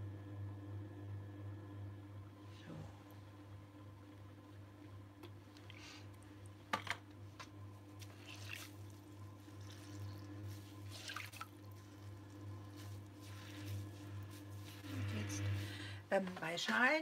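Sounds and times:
potter's wheel hum: 7.2 - 17.0
wet squelches of clay: 8.0 - 15.7.

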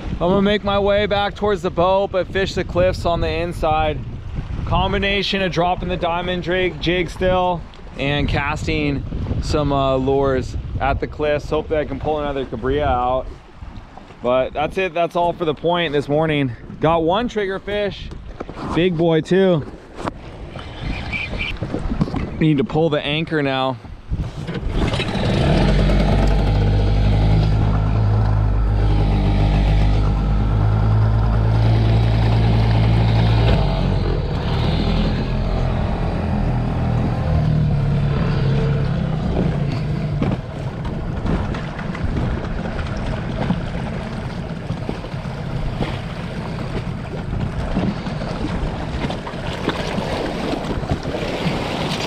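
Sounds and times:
water noise: 0.0 - 52.0
wind: 0.0 - 52.0
outboard motor running: 24.0 - 52.0.

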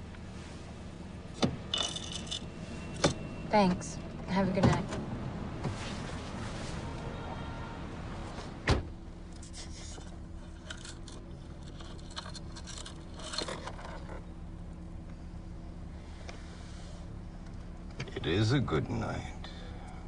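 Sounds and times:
car hum: 0.0 - 20.0
car door shutting: 1.4 - 1.6, 4.5 - 6.9, 8.3 - 9.0
small clinks: 1.7 - 3.0, 10.4 - 14.0.

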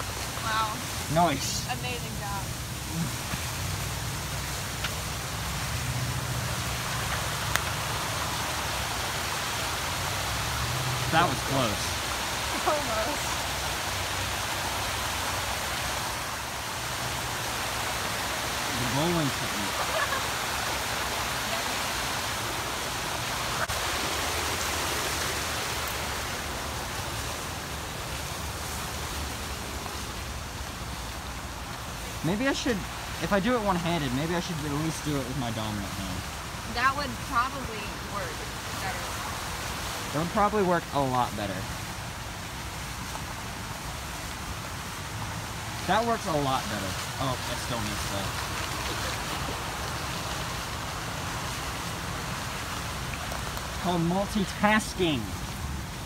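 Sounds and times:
even hiss: 0.0 - 37.0.

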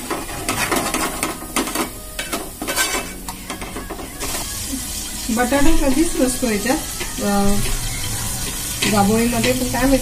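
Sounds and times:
paste sizzling in oil: 0.0 - 10.0
spoon scraping metal pot: 0.4 - 4.4, 6.8 - 9.7.

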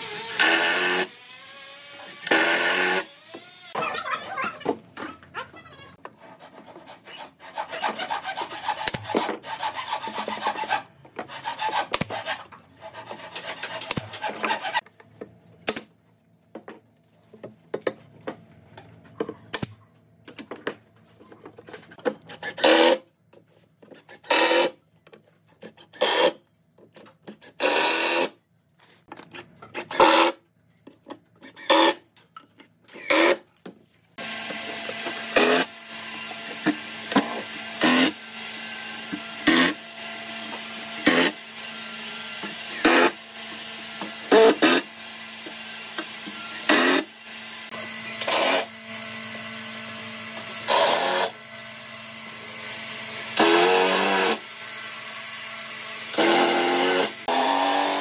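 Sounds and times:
scraping strokes on wood: 6.0 - 14.8.

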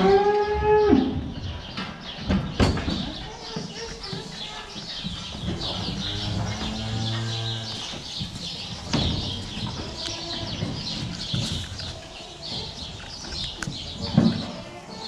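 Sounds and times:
small birds chirping: 1.1 - 15.0
cow mooing: 5.7 - 7.9.

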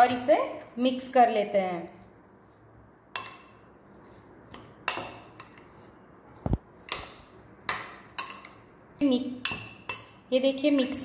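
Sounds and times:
spoon clinking against glass bowl: 3.1 - 3.6, 4.6 - 5.7, 7.7 - 8.7, 9.4 - 11.0.

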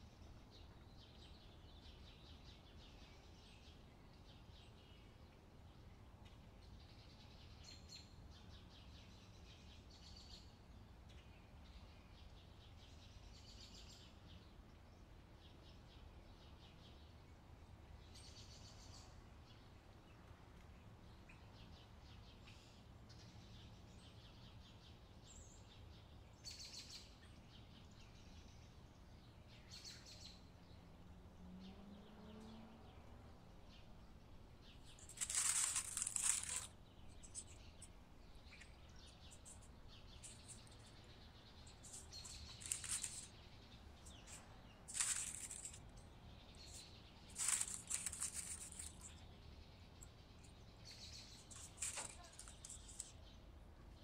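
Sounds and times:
plastic bag rustling: 35.0 - 37.5, 41.9 - 43.3, 44.9 - 45.8, 47.3 - 49.1, 51.5 - 53.0.

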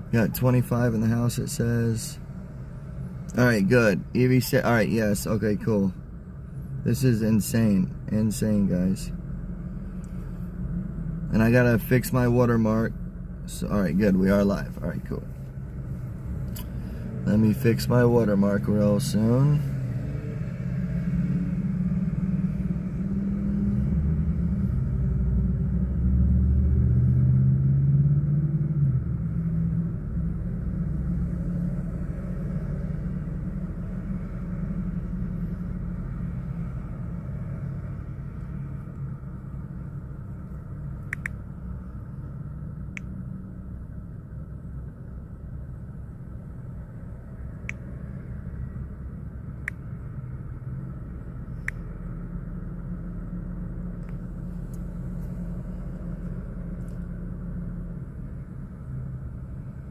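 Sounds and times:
car engine idling: 0.0 - 19.7, 29.0 - 59.9
passing traffic: 0.0 - 59.9
sharp clicks: 41.0 - 41.4.

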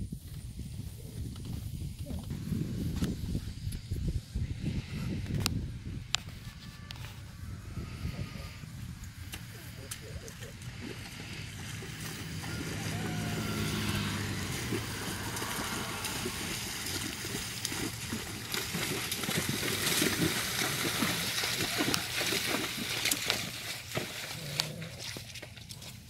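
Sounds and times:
hooves splashing in water: 6.3 - 26.0.

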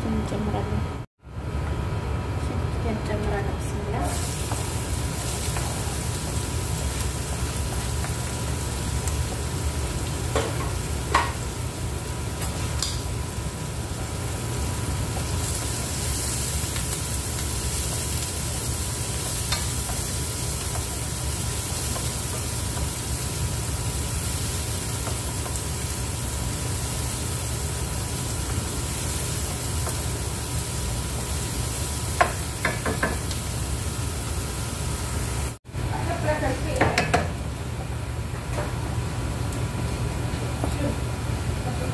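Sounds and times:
onions sizzling in oil: 4.0 - 37.9
wooden spoon knocking pan: 32.2 - 33.2.

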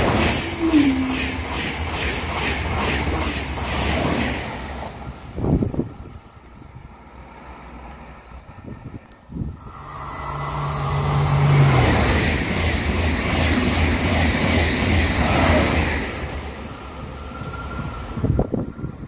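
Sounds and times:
high-speed train passing: 0.0 - 19.0
low hum dropping in pitch: 0.6 - 1.6.

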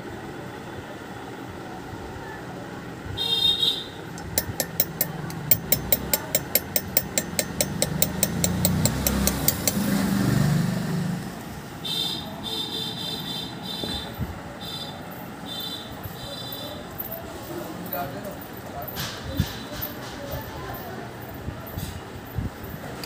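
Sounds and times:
small hammer tapping on brass: 4.2 - 9.9.

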